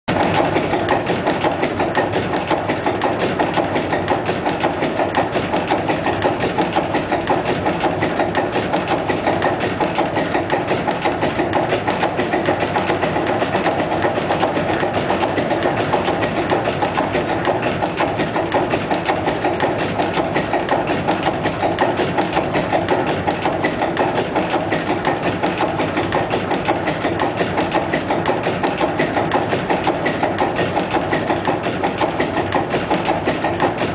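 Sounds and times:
rapid mechanical clatter: 0.1 - 33.9.

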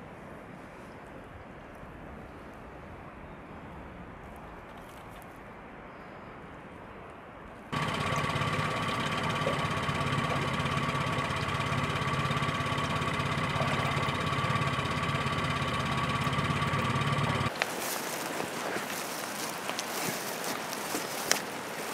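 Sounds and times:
faint outdoor ambience: 0.0 - 21.9
motor whining and humming: 7.8 - 21.9.

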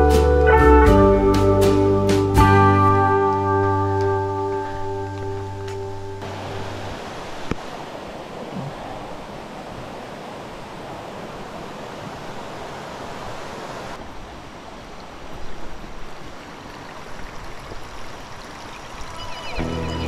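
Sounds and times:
ocean waves breaking: 5.9 - 20.0.

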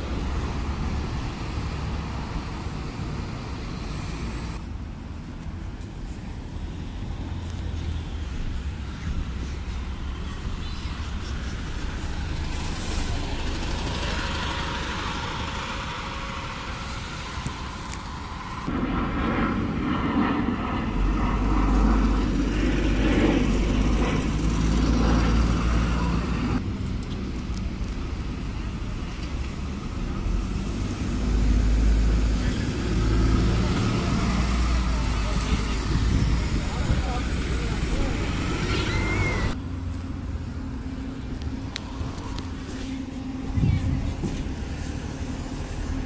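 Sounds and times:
bus engines humming: 0.0 - 18.7, 20.9 - 46.0
road noise: 0.0 - 46.0.

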